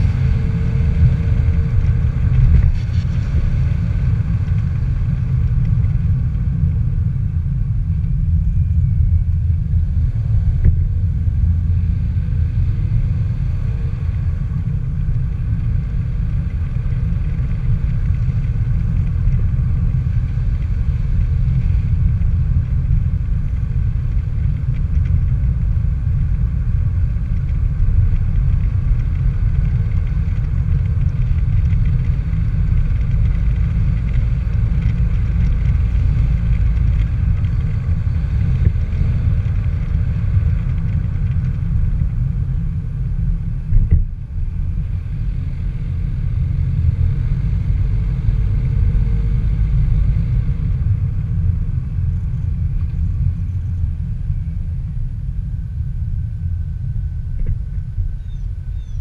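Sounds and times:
road noise: 0.0s - 59.0s
wind buffeting microphone: 0.0s - 59.0s.

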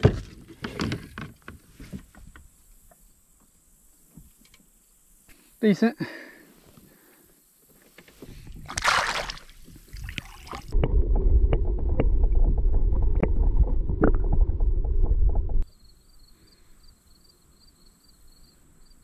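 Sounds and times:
water splash: 8.6s - 14.4s
muffled underwater rumble: 10.6s - 15.6s.

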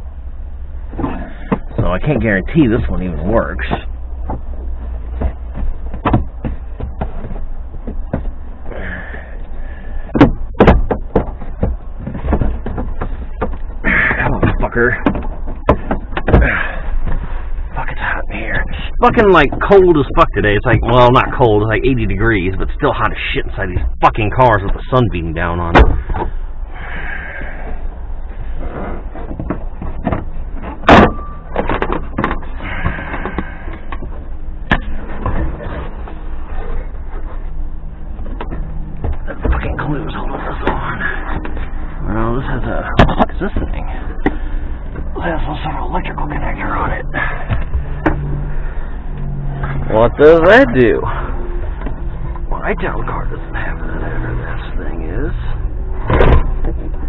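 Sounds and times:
loud knocks: 5.2s - 8.4s, 10.1s - 13.6s
tools and parts clattering: 29.0s - 36.2s.

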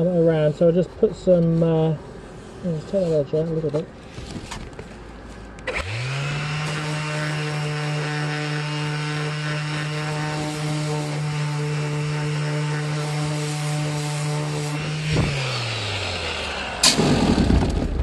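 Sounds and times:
orbital sander humming: 5.7s - 16.9s.

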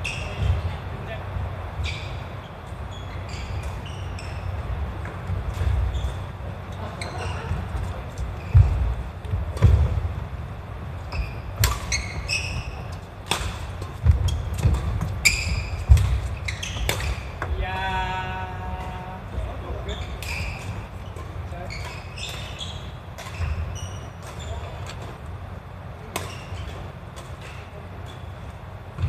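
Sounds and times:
shoes squeaking on floor: 0.0s - 0.9s, 1.6s - 10.0s, 11.0s - 25.3s, 26.0s - 29.0s
racket striking shuttlecock: 11.5s - 17.5s.

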